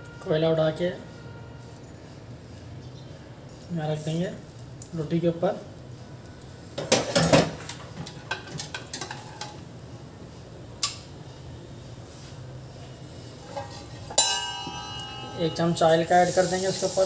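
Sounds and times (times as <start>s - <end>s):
metal tongs clattering on stovetop: 6.8s - 9.6s, 13.4s - 16.9s
faint steady hum: 9.0s - 16.2s
light metal clinks: 13.5s - 16.0s.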